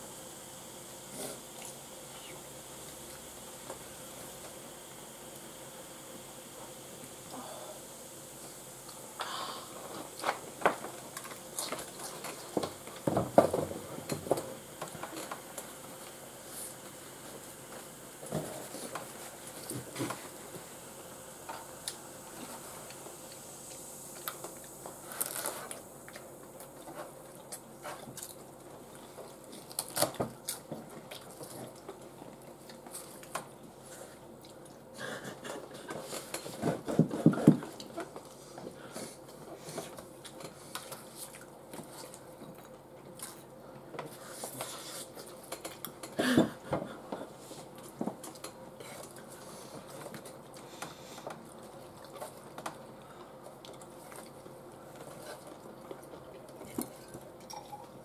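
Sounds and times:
chewing: 40.0 - 43.5, 51.2 - 57.9.

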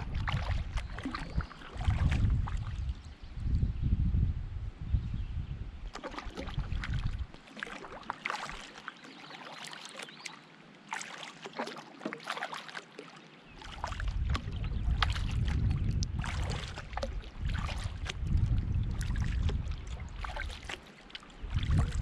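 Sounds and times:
paddle splashing water: 0.0 - 3.0, 5.8 - 22.0
low rumble: 17.5 - 19.9.

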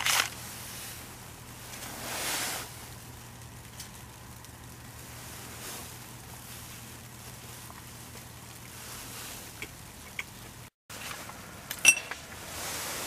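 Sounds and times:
soft hiss with low hum: 0.2 - 13.0
sharp metallic tink: 11.8 - 12.2.

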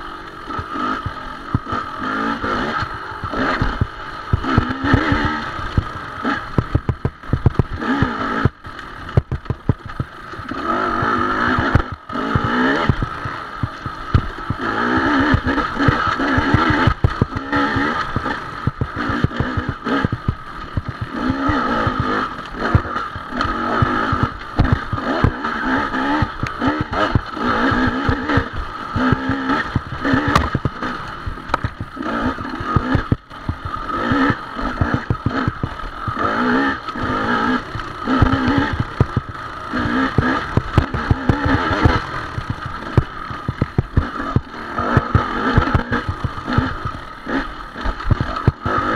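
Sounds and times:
dirt bike engine revving: 0.0 - 48.9
bike knocks and rattles: 2.4 - 48.9.

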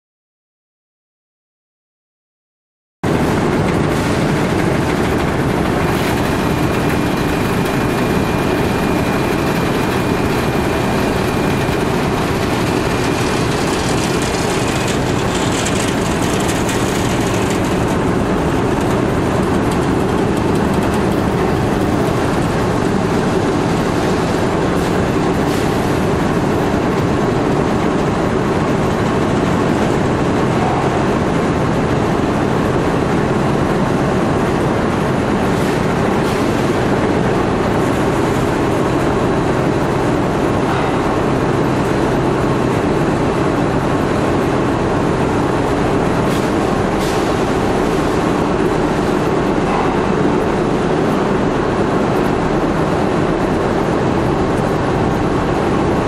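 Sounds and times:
machinery running: 3.0 - 56.0.

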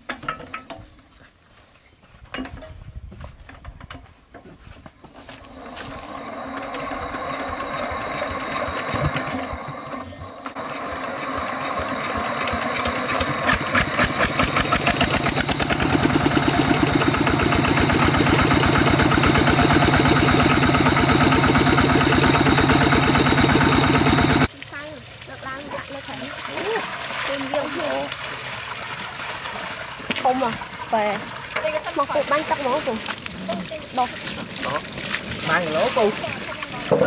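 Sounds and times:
diesel engine starting and chugging: 5.5 - 25.0.

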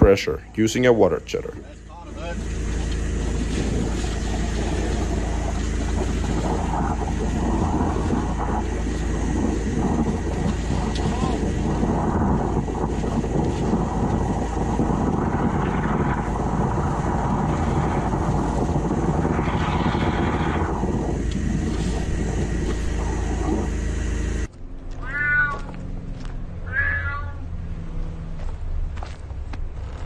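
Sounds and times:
low hum: 0.0 - 30.0
cat meowing: 25.0 - 25.8, 26.6 - 27.5.

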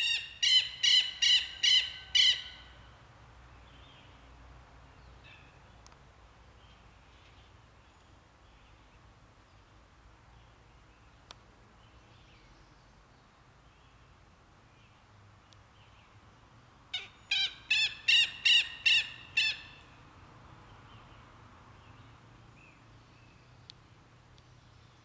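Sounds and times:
lapwing calling: 0.0 - 2.8, 16.9 - 19.9.

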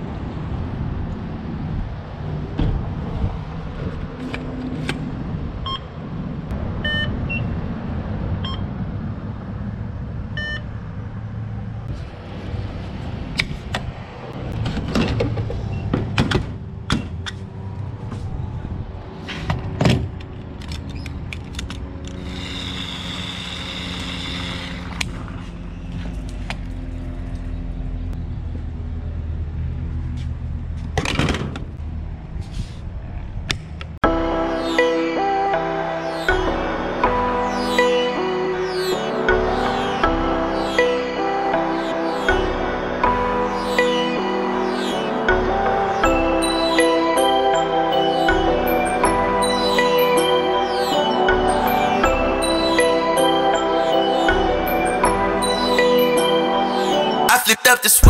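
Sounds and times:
fuel pump keypad beeps: 5.6 - 5.9, 6.8 - 7.5, 8.4 - 8.6, 10.4 - 10.7.

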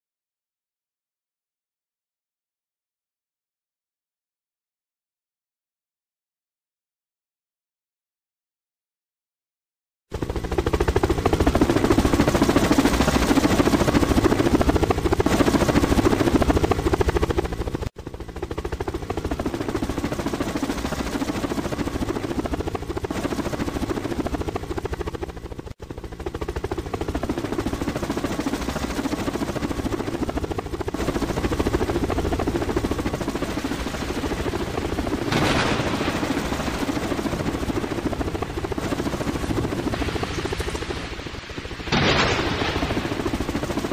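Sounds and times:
helicopter engine noise: 10.1 - 43.9
helicopter rotor blade chop: 10.1 - 43.9.

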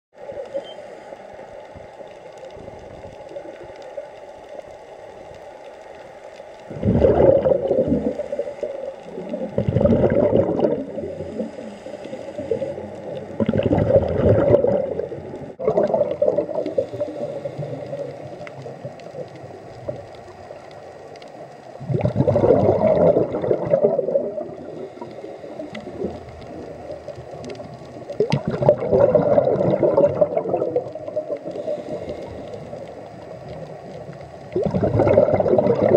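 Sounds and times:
underwater background noise: 0.1 - 35.9
exhaled breath bubbling underwater: 6.7 - 19.3, 21.8 - 33.1, 34.5 - 35.9.

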